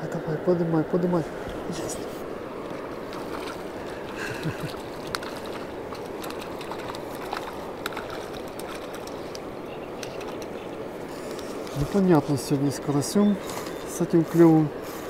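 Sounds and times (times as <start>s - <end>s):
steady background hiss: 0.0s - 15.0s
fish splashing at water surface: 2.7s - 11.7s.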